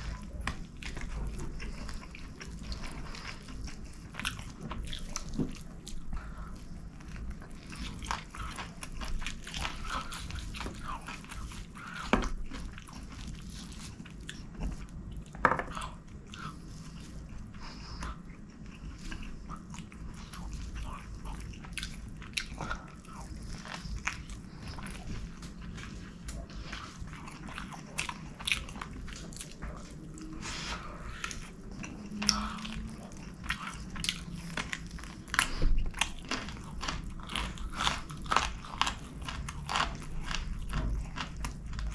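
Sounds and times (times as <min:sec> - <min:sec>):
man chewing and smacking: 0:00.0 - 0:41.9
food crunches: 0:31.3 - 0:41.9.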